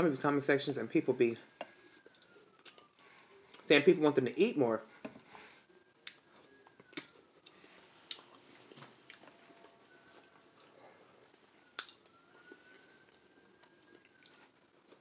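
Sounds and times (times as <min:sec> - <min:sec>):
person chewing: 0:01.9 - 0:03.7, 0:06.0 - 0:15.0
lip smacks and clicks: 0:02.0 - 0:03.7, 0:06.0 - 0:08.4, 0:11.7 - 0:12.8.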